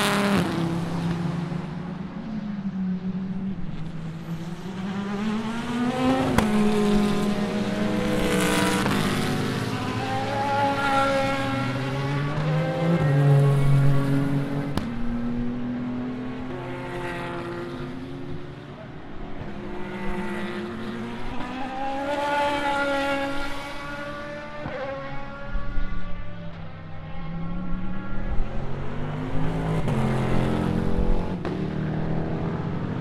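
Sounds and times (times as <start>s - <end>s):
race car engines accelerating: 0.0s - 33.0s.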